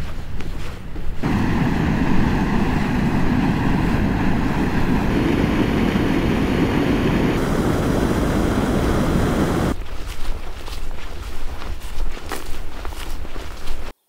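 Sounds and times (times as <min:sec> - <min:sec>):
wind buffeting microphone: 0:00.1 - 0:09.8.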